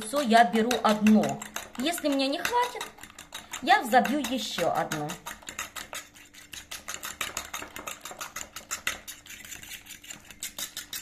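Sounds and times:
fork clicking against bowl: 0.0 - 11.0.

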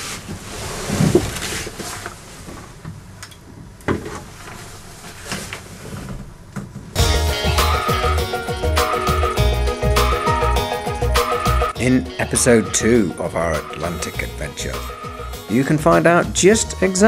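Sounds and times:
rustling of person shifting: 0.0 - 7.0
music: 7.0 - 17.0.

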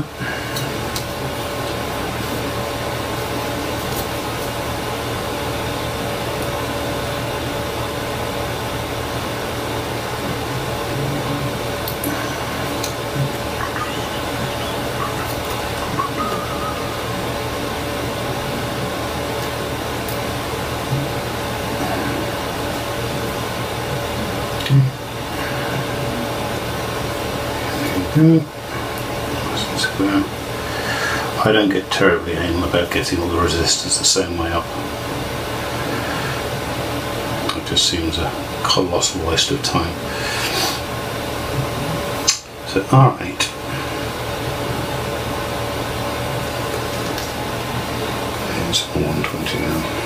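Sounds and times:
fan-like rushing noise: 0.0 - 31.4
room noise hiss and hum: 0.0 - 50.0
thin steady tone: 10.5 - 19.1.

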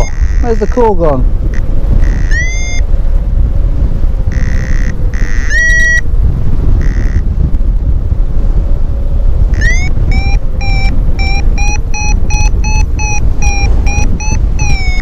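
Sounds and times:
variometer beeping: 0.0 - 3.0, 4.2 - 6.1, 6.7 - 7.3, 9.4 - 15.0
wind rumble on microphone: 0.0 - 15.0.

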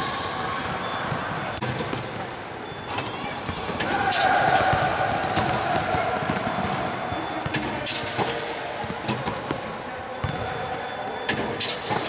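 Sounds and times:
noisy gym background: 0.0 - 12.0
basketball bouncing and thudding: 0.6 - 2.4, 3.4 - 10.6.

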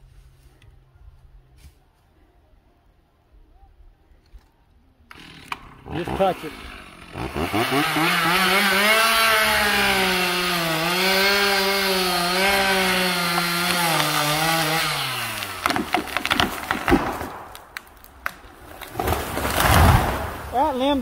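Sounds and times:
chainsaw cutting tree: 5.1 - 20.6
tree cracking: 5.1 - 21.0.

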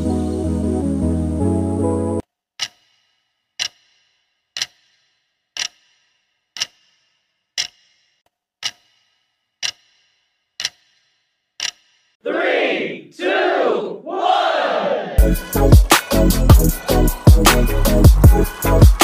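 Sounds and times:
clock ticking: 2.6 - 12.2.

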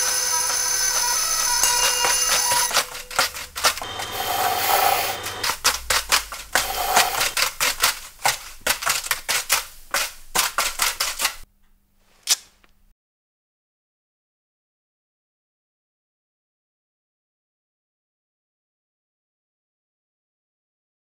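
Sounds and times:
hand tools clicking and snapping: 0.0 - 11.5, 12.2 - 12.7.

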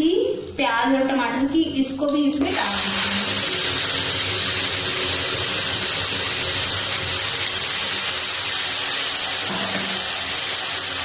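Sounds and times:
gravy sizzling in hot oil: 2.4 - 11.0.

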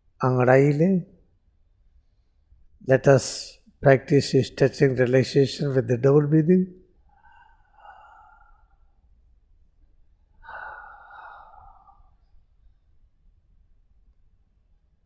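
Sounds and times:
man breathing deeply: 7.1 - 9.0, 10.4 - 12.2.

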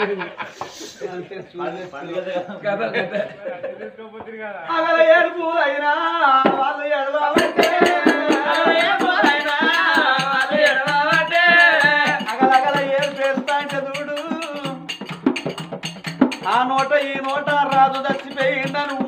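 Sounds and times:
men singing folk song: 4.7 - 15.0, 16.4 - 19.0.

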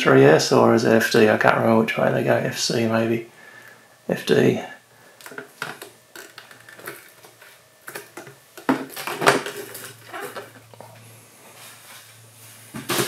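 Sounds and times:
plastic cases clicking and clacking: 5.2 - 10.9.

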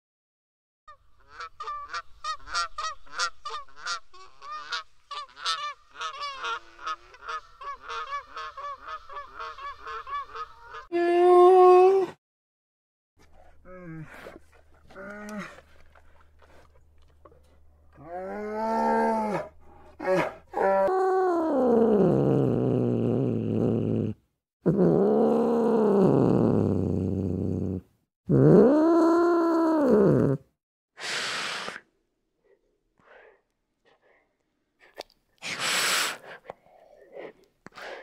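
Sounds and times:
short breathy burst: 31.0 - 31.9, 35.4 - 38.0.

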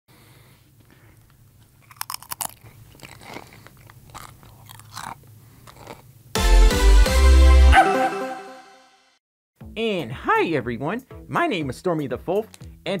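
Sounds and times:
person crunching a snack: 0.8 - 6.1.

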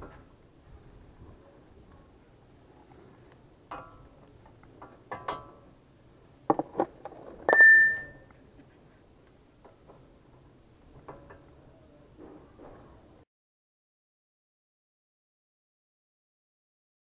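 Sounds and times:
metal pipe clanging on concrete: 3.7 - 4.2, 4.8 - 5.6, 7.5 - 8.2.

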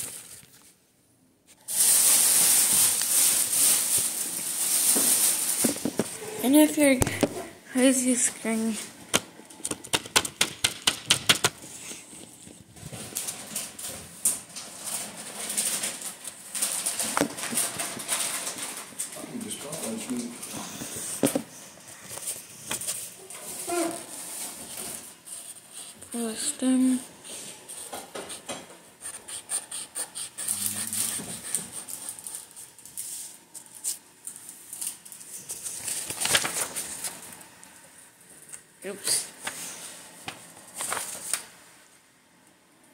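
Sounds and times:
marker tapping on paper: 9.1 - 11.6
marker scratching on paper: 27.7 - 32.2.

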